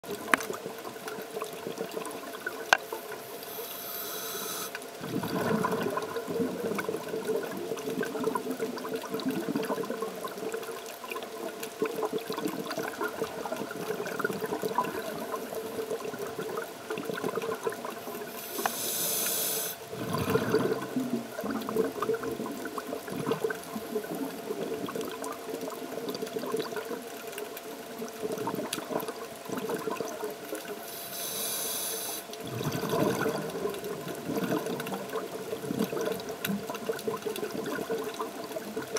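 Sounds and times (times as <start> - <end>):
regulator hiss on inhale: 2.8 - 4.9, 18.1 - 19.9, 30.8 - 32.4
exhaled bubbles rushing: 4.9 - 18.3, 19.8 - 27.1, 27.9 - 30.7, 32.4 - 38.9.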